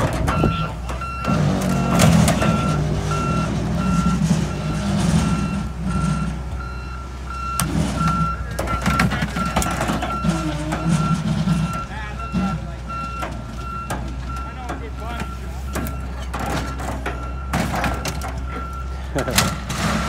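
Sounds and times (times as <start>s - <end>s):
diesel engine running: 0.0s - 20.0s
backup alarm beeping: 0.2s - 19.6s.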